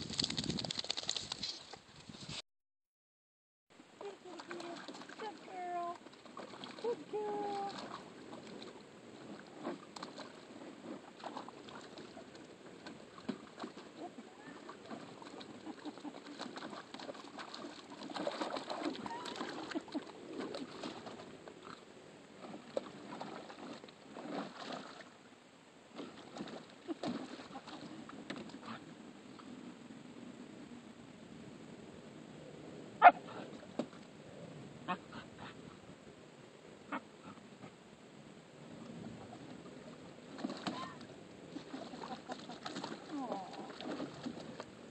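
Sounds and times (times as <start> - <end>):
puppy splashing in water: 4.0 - 21.8, 22.4 - 25.2, 26.0 - 28.8, 40.3 - 44.8.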